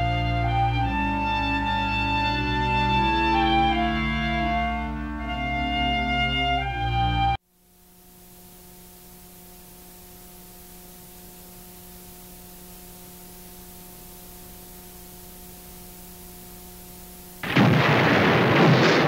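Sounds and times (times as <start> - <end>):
orchestral music: 0.0 - 7.4
tape hiss: 0.0 - 19.0.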